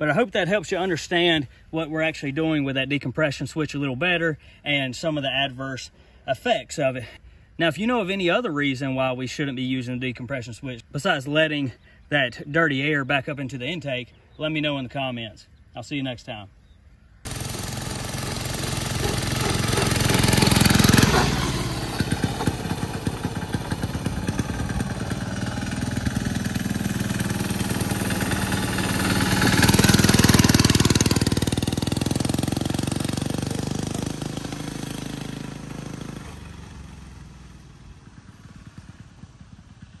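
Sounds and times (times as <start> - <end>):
diesel kart engine driving past: 17.3 - 40.0.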